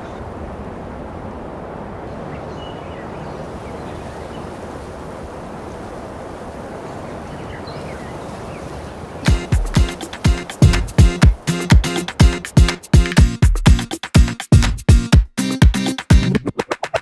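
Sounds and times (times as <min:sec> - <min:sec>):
wind-like rush: 0:00.0 - 0:13.3.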